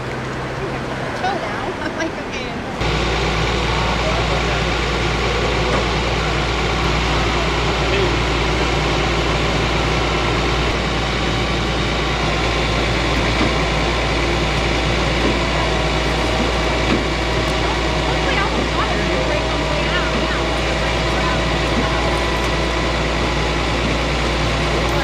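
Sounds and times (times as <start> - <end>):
truck engine idling: 0.0 - 25.0.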